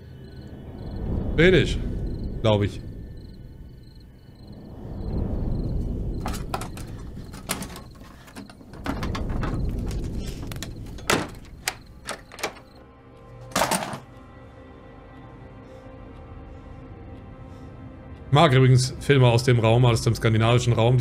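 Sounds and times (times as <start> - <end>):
low rumble: 0.0 - 12.1
sharp knocks and clicks: 6.2 - 12.8.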